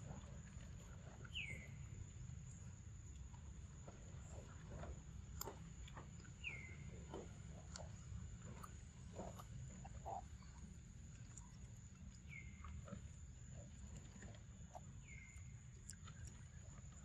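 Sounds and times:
monkey chewing wet smacks: 0:04.3 - 0:17.0.

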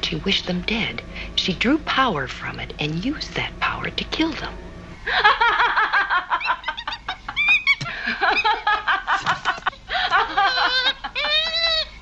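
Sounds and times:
woman laughing: 0:05.0 - 0:12.0
monkey shrieking: 0:06.3 - 0:08.6, 0:10.3 - 0:12.0.

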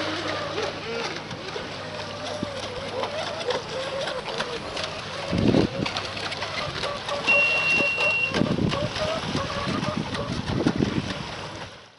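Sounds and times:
wind on microphone: 0:05.2 - 0:06.0, 0:07.7 - 0:11.6
steady high beep: 0:07.3 - 0:08.3.

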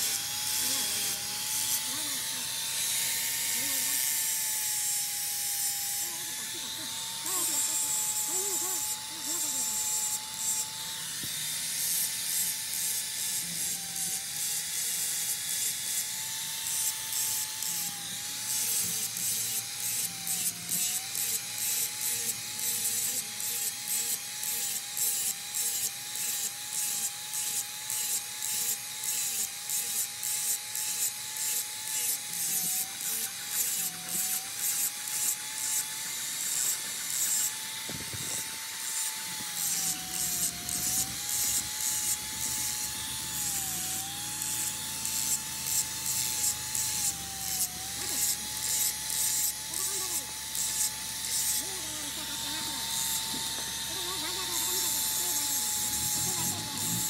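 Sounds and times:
hand tool scraping: 0:00.0 - 0:12.4, 0:16.8 - 0:57.0.

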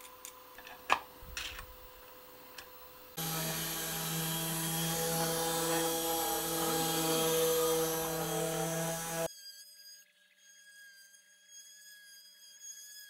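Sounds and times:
router bit cutting wood: 0:03.2 - 0:09.3
router spindle whining: 0:03.2 - 0:09.3
stepper motors sweeping in pitch: 0:03.2 - 0:09.3.

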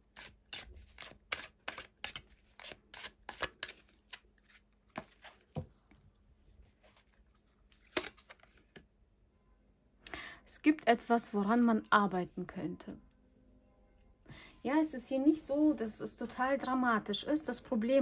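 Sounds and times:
cards being shuffled: 0:00.2 - 0:05.6, 0:06.7 - 0:08.8.

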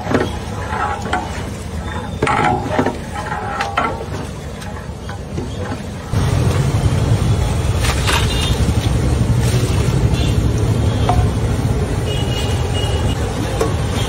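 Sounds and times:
metal pots and ladles clinking: 0:00.0 - 0:06.1, 0:11.0 - 0:11.6.

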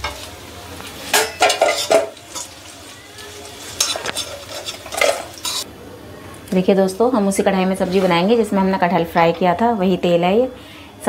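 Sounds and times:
faint oil sizzle: 0:00.0 - 0:05.7
metal spatula scraping a wok: 0:01.1 - 0:02.7, 0:03.4 - 0:05.6.

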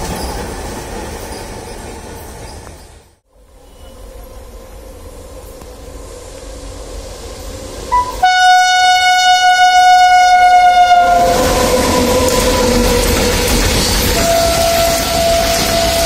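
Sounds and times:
train wheels rumbling: 0:00.0 - 0:16.0
locomotive horn blast: 0:07.9 - 0:13.4, 0:14.1 - 0:16.0.

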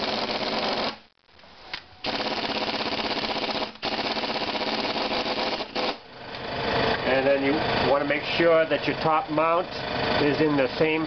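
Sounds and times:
air impact wrench hammering: 0:00.0 - 0:01.0, 0:02.0 - 0:06.0.

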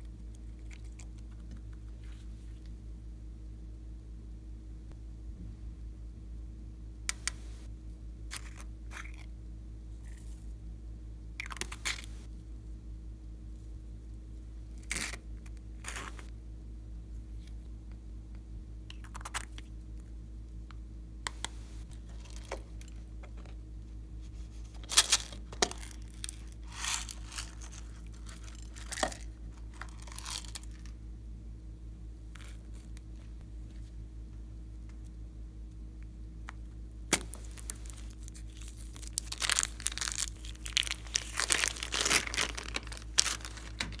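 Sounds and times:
steady low hum: 0:00.0 - 0:44.0
plastic containers clicking and rustling: 0:39.1 - 0:44.0.

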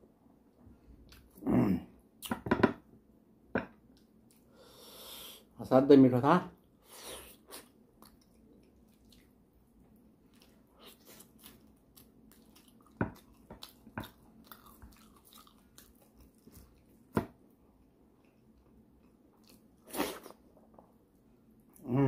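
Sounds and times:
wet chewing and mouth smacks: 0:07.3 - 0:17.2, 0:18.2 - 0:20.8.

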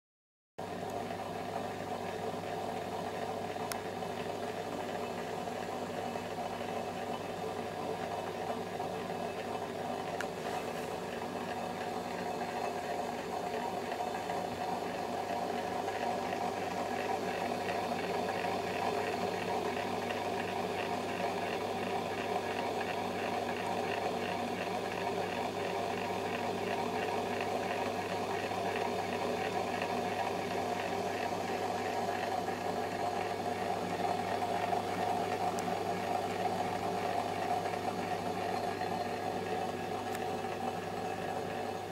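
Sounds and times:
laboratory stirrer motor whirring: 0:02.2 - 0:41.9.

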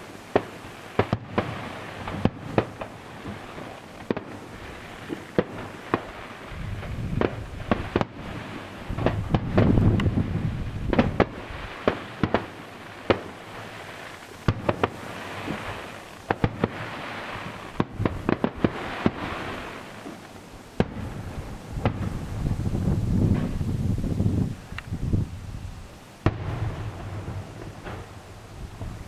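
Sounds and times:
firework cracks and bangs: 0:00.0 - 0:25.0, 0:26.2 - 0:29.0
hissing crackle: 0:00.0 - 0:29.0.

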